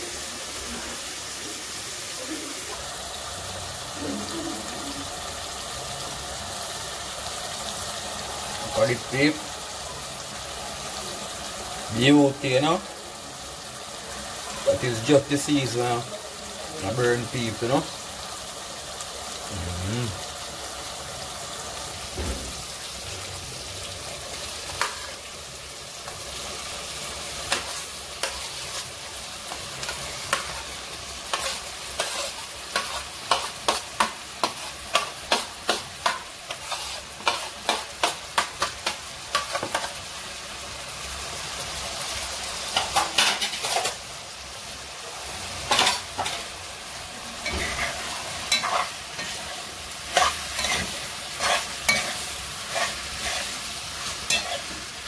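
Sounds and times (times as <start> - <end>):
vegetables sizzling in oil: 0.0 - 55.0
spoon scraping a pot: 31.3 - 33.8, 34.4 - 38.1, 50.1 - 53.6, 54.3 - 54.8.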